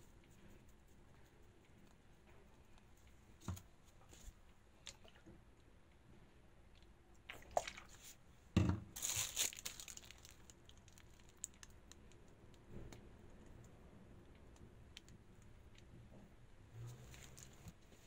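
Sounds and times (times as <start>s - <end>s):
knock on worktop: 8.6s - 8.9s
crinkling: 8.9s - 18.0s.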